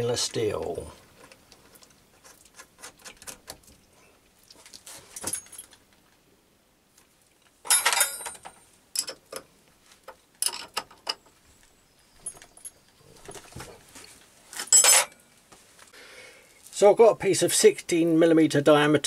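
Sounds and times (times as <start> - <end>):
metal tools clicking and clattering: 7.6 - 9.4, 10.4 - 11.2, 14.6 - 15.2.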